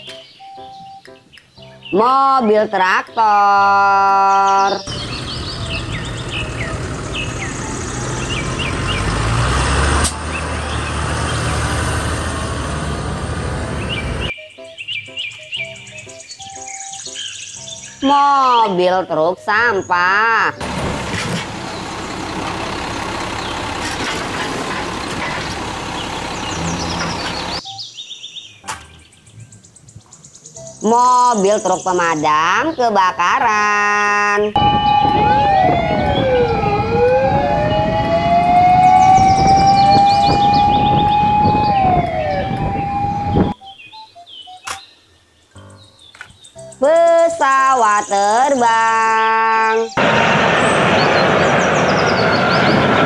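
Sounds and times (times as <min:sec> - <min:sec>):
birds chirping: 0:00.0 - 0:53.0
garbage truck mechanical noise: 0:04.8 - 0:14.3, 0:20.6 - 0:27.8, 0:34.6 - 0:43.6
tractor engine idling: 0:04.9 - 0:09.0, 0:20.6 - 0:27.6.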